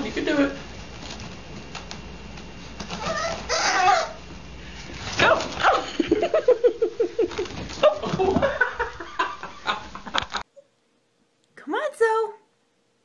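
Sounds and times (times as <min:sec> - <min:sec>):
puppy whining and yelping: 0:02.9 - 0:04.2.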